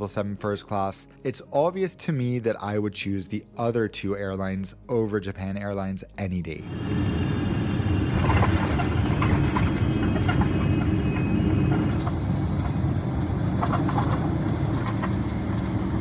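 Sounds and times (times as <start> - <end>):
jet airliner rumble: 6.4 - 16.0
faint high whine: 6.6 - 13.0.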